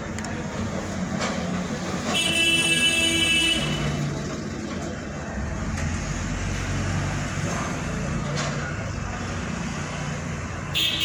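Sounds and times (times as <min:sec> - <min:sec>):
low rumble of traffic: 0:00.0 - 0:11.0
vehicle horn: 0:02.1 - 0:04.0, 0:10.8 - 0:11.0.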